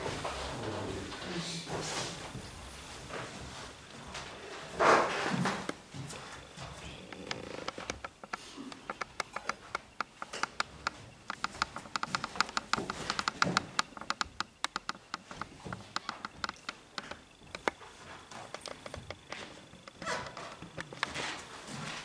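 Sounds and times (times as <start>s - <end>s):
quick light clicks and taps: 7.1s - 17.8s.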